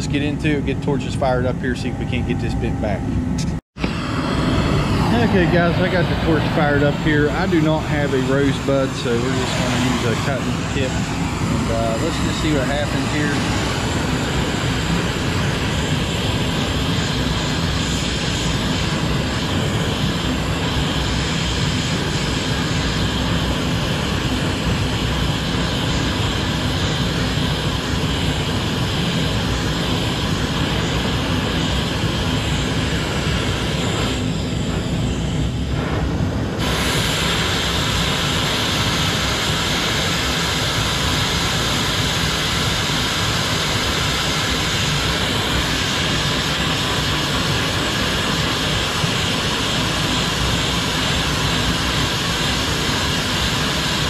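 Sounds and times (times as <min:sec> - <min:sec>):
heater roaring: 0:00.0 - 0:54.0
cutting torch hissing: 0:03.8 - 0:54.0.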